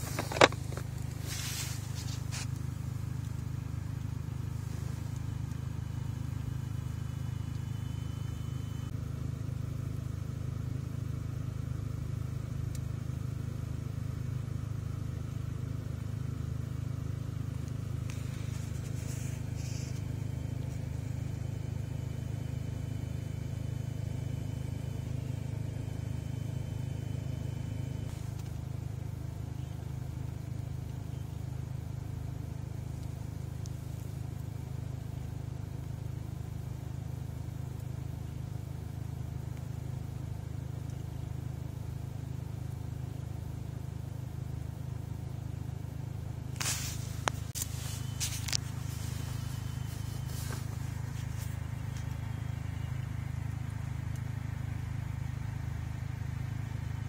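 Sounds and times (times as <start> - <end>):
box clicks and rustles: 0.0 - 2.4
car cabin rumble: 0.0 - 31.4, 46.2 - 57.0.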